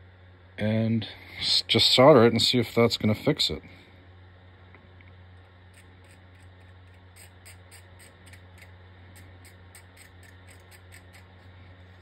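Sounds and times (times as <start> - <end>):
steady low hum: 0.0 - 12.0
blade scraping circuit board: 5.7 - 12.0.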